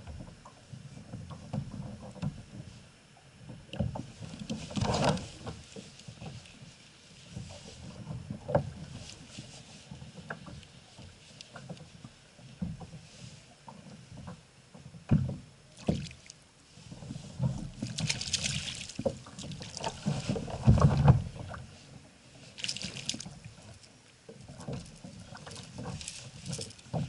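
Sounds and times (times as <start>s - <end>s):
fish splashing at surface: 17.8s - 20.2s, 22.6s - 23.3s.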